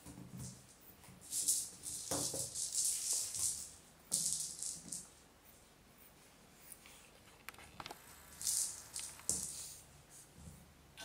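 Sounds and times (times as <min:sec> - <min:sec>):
rattle ball rolling on tile: 0:00.0 - 0:05.2, 0:07.8 - 0:09.8.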